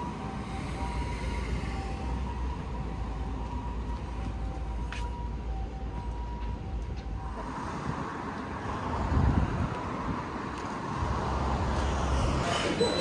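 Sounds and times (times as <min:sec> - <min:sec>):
wind buffeting microphone: 0:07.6 - 0:12.4.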